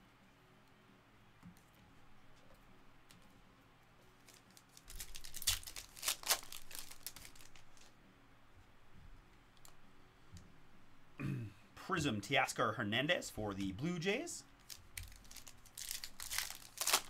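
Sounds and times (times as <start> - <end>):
foil wrapper crinkling: 4.2 - 7.9, 14.6 - 17.0
foil wrapper tearing: 4.2 - 7.9, 14.6 - 17.0.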